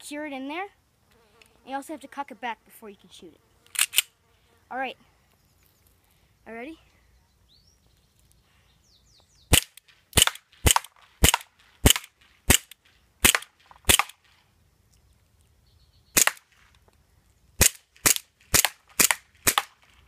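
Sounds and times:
airsoft pistol firing: 9.5s - 14.2s, 16.2s - 16.4s, 17.6s - 19.8s.

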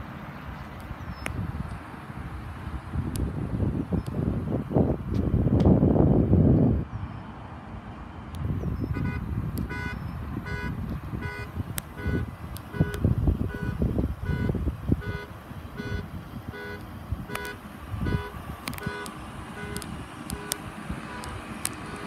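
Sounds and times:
wind rumble on microphone: 0.0s - 22.0s
vehicle alarm short beeps: 8.8s - 20.5s.

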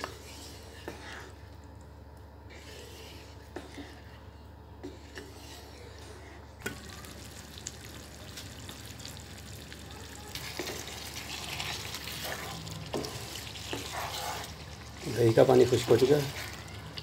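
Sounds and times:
food sizzling in oil: 6.6s - 17.0s.

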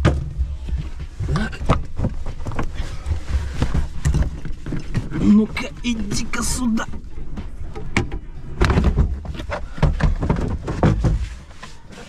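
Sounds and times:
knocks and thumps on car shelf: 7.9s - 11.5s.

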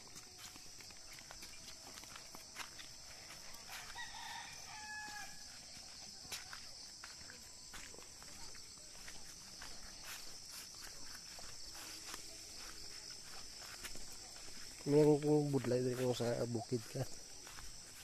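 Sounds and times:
footsteps on dirt path: 0.0s - 18.0s
rooster crowing: 3.5s - 5.6s.

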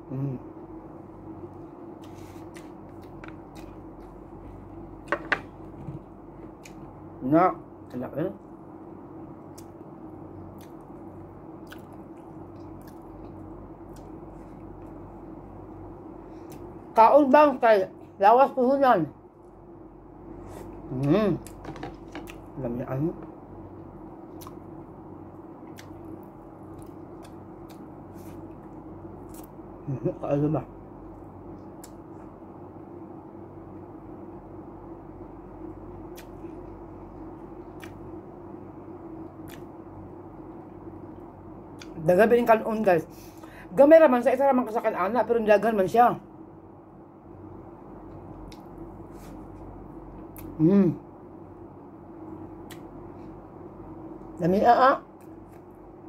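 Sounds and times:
steady low hum: 0.0s - 56.0s
person chewing food: 1.9s - 6.9s, 10.4s - 15.2s, 20.4s - 22.6s, 23.7s - 24.8s, 25.6s - 29.6s, 36.0s - 38.1s, 48.0s - 50.6s
lip clicks: 31.8s - 32.0s, 52.6s - 52.9s.

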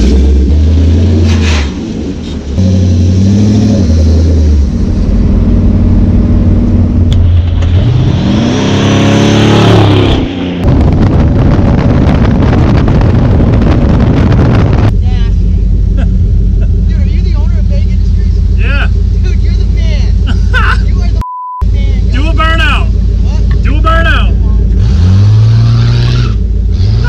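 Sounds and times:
road and wind noise: 0.0s - 27.0s
truck engine revving: 0.0s - 27.0s
truck accelerating past: 24.7s - 27.0s.

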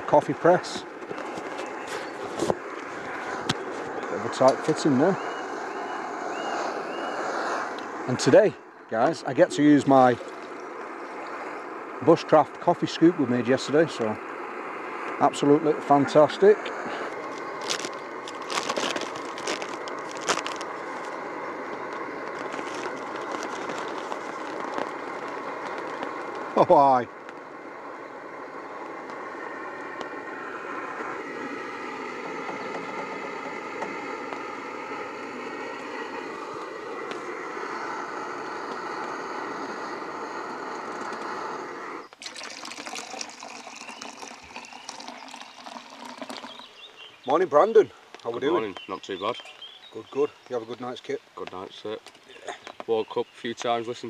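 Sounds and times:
coffee bubbling: 0.0s - 48.8s
steady hiss: 0.0s - 54.0s
foil bag crinkling: 17.0s - 26.6s, 42.2s - 46.5s
coffee pouring into metal mug: 40.6s - 46.8s.

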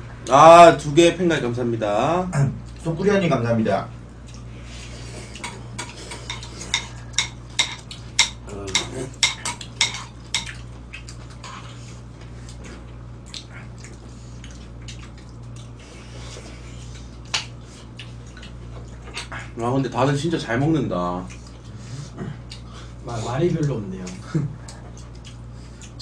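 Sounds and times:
low hum: 0.0s - 26.0s
utensils clinking on bowls: 5.4s - 10.6s.

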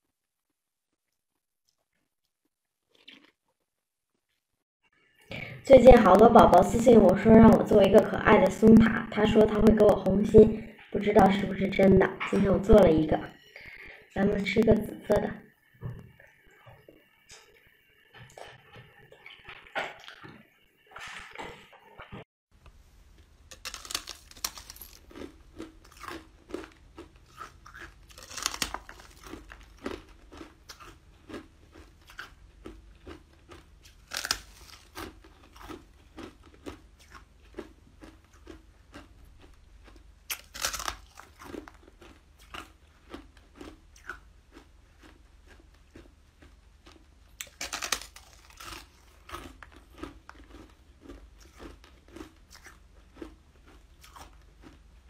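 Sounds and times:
crunchy bites: 23.4s - 54.9s
chewing clicks: 23.5s - 54.8s.

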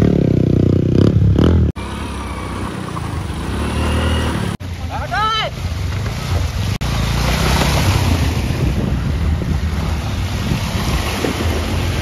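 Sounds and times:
wind noise on microphone: 7.4s - 12.0s.

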